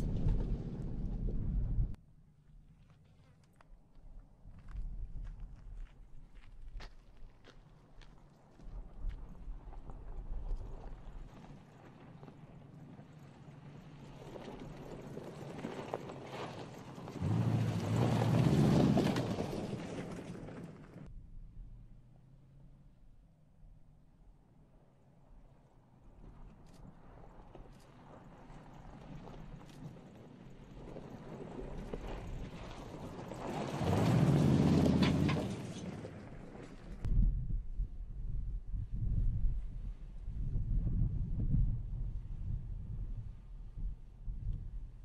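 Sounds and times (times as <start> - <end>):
tyres on loose gravel: 4.5 - 21.1, 26.2 - 37.1
pickup truck engine driving past: 17.2 - 21.0, 32.9 - 37.0.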